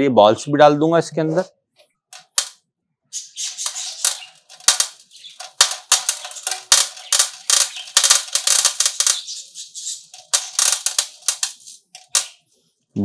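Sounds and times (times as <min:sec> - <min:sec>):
steel balls clattering in metal tank: 0:03.4 - 0:12.4.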